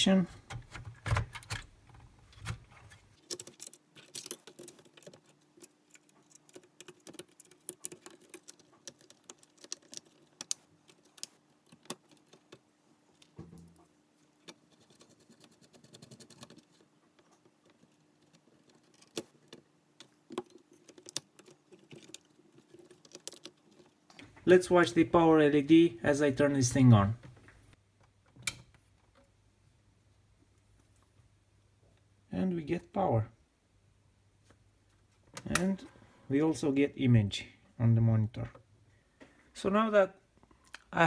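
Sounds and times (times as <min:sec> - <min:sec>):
clicks and rattles of handled parts: 0:02.4 - 0:13.4, 0:14.4 - 0:24.4.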